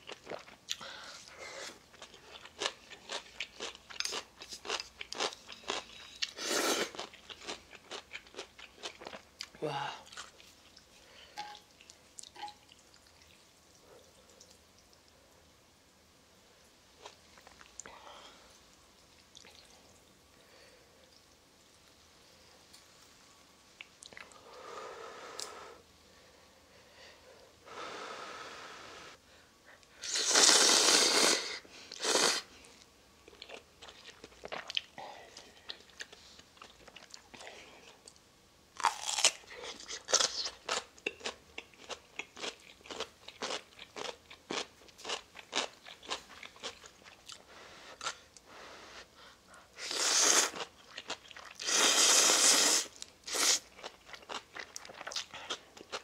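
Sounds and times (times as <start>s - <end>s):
slurping noodles: 30.0s - 32.5s, 49.8s - 50.6s, 51.6s - 53.6s
crunching bites while chewing: 38.8s - 46.9s.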